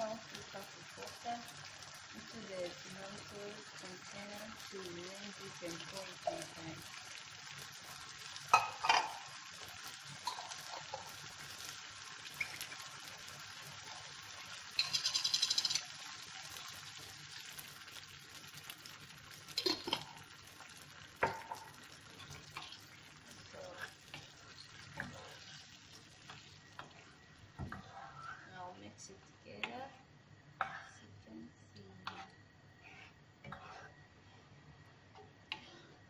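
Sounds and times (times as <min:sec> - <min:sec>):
stew sizzling in a frying pan: 0:00.0 - 0:30.5
wooden spoon scraping a pan: 0:26.3 - 0:28.5, 0:32.0 - 0:33.9.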